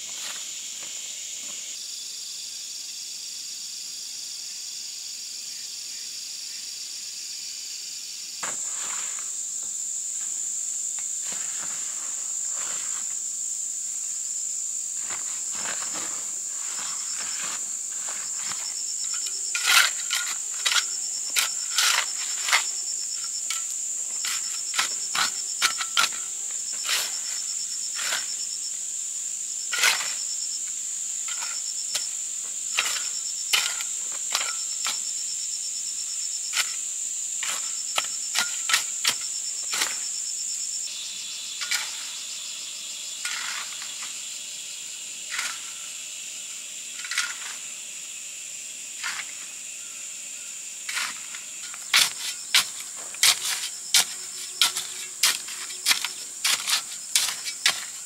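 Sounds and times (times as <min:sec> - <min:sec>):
crickets and insects droning: 0:00.0 - 0:58.0
shovel scraping gravel: 0:08.4 - 0:09.4, 0:11.0 - 0:13.2, 0:15.0 - 0:28.6, 0:29.7 - 0:30.4, 0:31.2 - 0:35.1, 0:36.5 - 0:36.8, 0:37.4 - 0:40.2, 0:41.6 - 0:42.3, 0:43.2 - 0:44.2, 0:45.3 - 0:45.9, 0:46.9 - 0:47.8, 0:49.0 - 0:49.5, 0:50.9 - 0:58.0.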